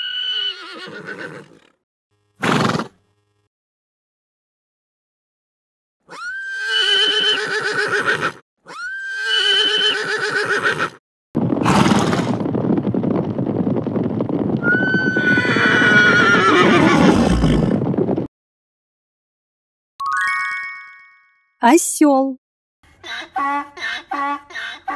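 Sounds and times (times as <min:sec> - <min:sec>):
horse whinnying: 0:00.0 - 0:01.8, 0:02.4 - 0:02.9, 0:06.1 - 0:11.0, 0:11.6 - 0:12.4, 0:14.6 - 0:17.8
hoofbeats of running horses: 0:11.4 - 0:18.3.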